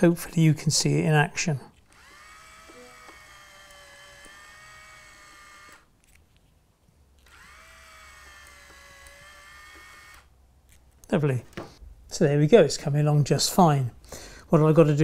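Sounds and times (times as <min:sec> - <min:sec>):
point motor whining faintly: 0:01.9 - 0:05.9.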